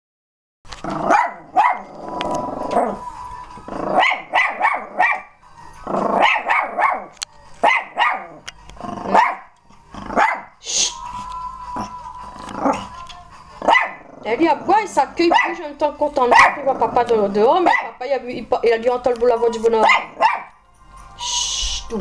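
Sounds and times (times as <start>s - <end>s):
dog barking: 1.0s - 1.9s, 4.0s - 5.3s, 6.2s - 8.4s, 9.1s - 9.5s, 10.1s - 10.6s, 13.6s - 14.1s, 15.2s - 15.7s, 16.3s - 16.8s, 17.6s - 18.0s, 19.8s - 20.6s.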